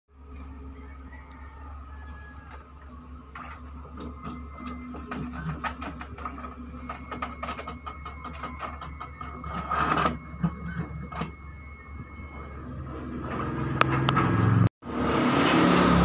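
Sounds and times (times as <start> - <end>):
printer mechanism whining: 0.2 - 16.0
printer rushing sweep: 0.2 - 16.0
printer clicks and ticks: 3.3 - 11.3.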